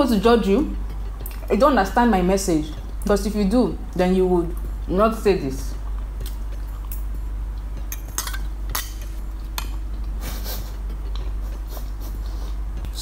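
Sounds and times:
low hum: 0.0s - 13.0s
fork clinking against plate: 7.9s - 9.8s.

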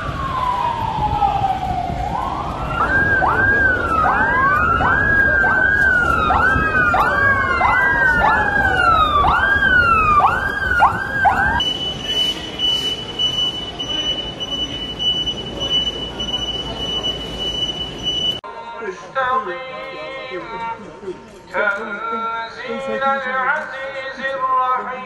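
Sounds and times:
police sirens wailing: 0.0s - 18.4s
steady high siren tone: 0.0s - 18.4s.

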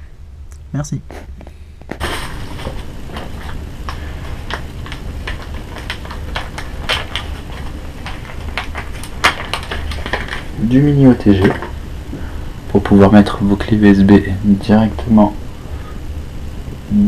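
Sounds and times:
steady low hum: 0.0s - 17.0s
packaging clicks and rustles: 1.9s - 11.7s.

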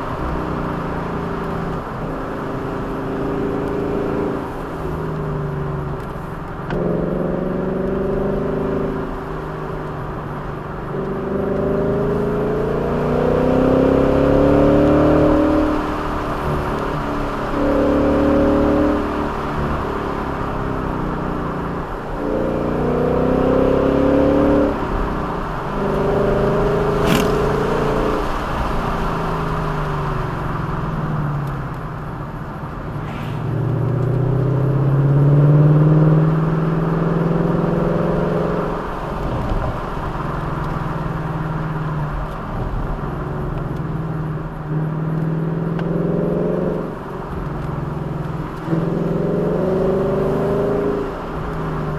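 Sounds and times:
vehicle engine revving: 0.0s - 31.8s, 32.4s - 51.9s
road and wind noise: 0.0s - 51.9s.

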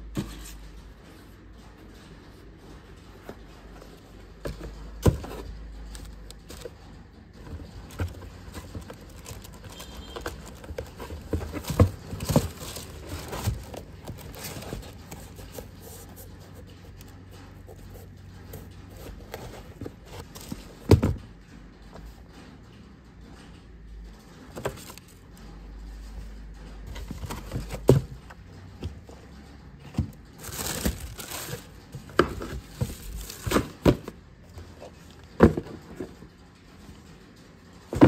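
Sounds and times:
tissue paper crinkling: 30.4s - 31.7s.

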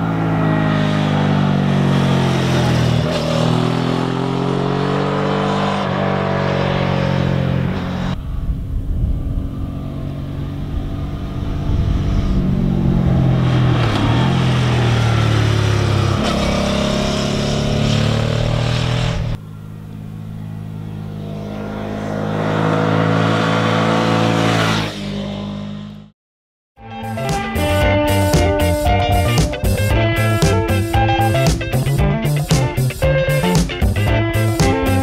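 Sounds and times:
motorcycle engine passing: 0.0s - 26.1s.

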